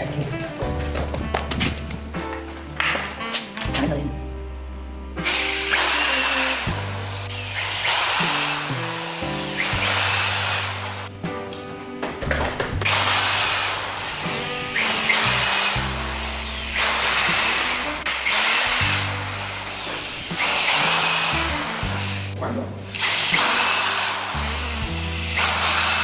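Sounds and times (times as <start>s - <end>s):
background music with bass line: 0.0s - 26.0s
electric drill boring into wood: 5.2s - 11.1s, 12.8s - 22.3s, 22.9s - 26.0s.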